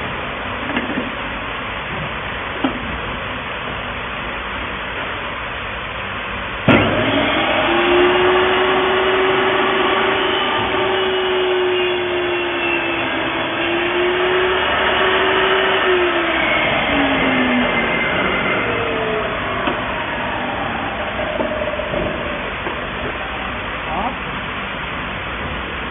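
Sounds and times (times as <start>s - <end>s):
table saw whining: 6.6s - 24.2s.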